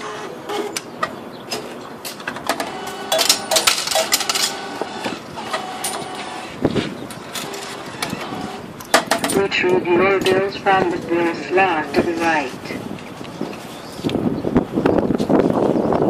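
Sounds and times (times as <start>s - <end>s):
ticket machine clicks and clinks: 2.5s - 4.8s.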